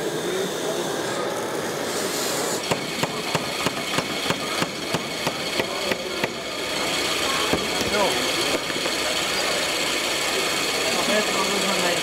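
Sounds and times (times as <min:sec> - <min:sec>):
hydraulic pump whine: 0:00.0 - 0:12.0
sharp evenly spaced knocks: 0:02.6 - 0:06.4.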